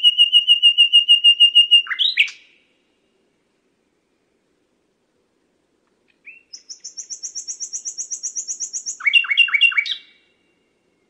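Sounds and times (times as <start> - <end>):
nightingale singing: 0.0 - 3.2, 6.1 - 11.0.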